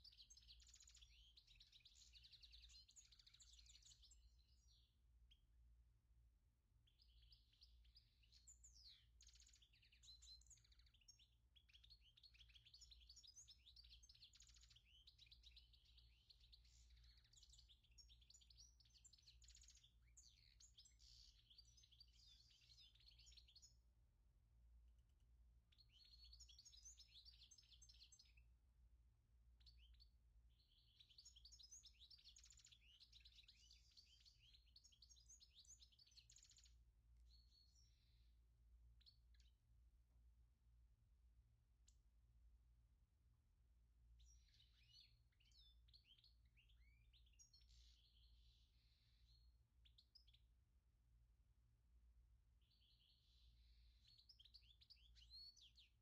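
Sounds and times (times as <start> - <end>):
small bird twittering: 7.0 - 23.6.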